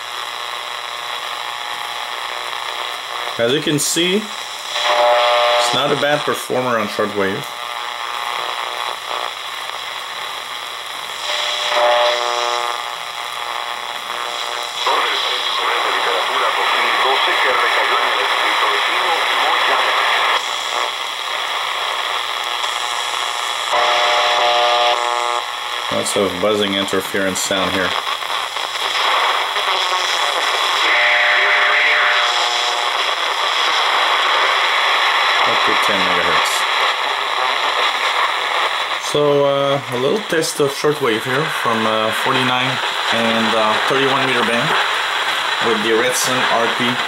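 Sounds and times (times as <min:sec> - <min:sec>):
radio static and hiss: 0:00.0 - 0:47.0
radio whistling tones: 0:04.0 - 0:06.3, 0:11.2 - 0:25.6, 0:28.7 - 0:39.3.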